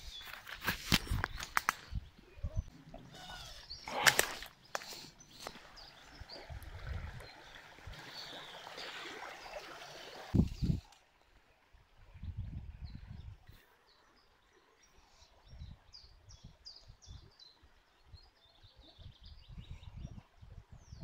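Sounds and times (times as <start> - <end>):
footsteps on stones: 0.0 - 1.8, 3.9 - 5.7
shallow stream rushing: 4.0 - 10.4.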